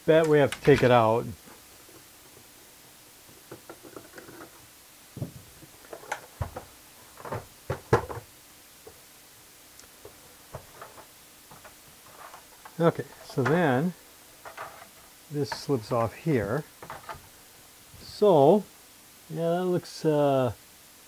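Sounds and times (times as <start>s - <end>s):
keyboard knocking and clattering: 5.2s - 8.3s.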